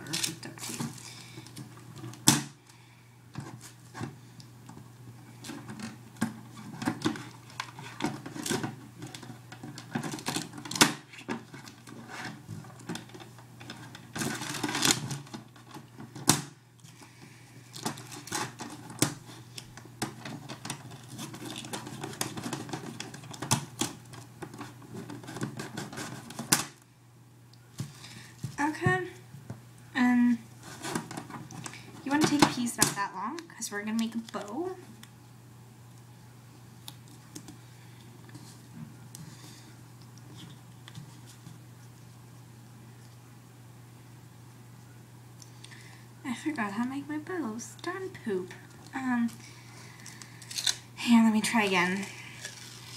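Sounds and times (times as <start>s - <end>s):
tape clicks and crackles: 0.0s - 26.9s, 36.8s - 39.4s, 48.6s - 50.9s
faint low hum: 0.0s - 52.9s.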